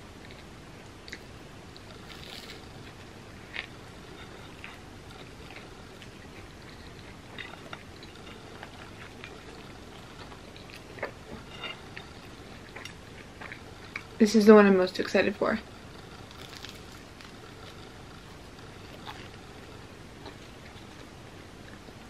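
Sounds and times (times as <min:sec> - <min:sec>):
steady background hiss: 0:00.0 - 0:22.0
chewing with wet mouth clicks: 0:03.5 - 0:14.1.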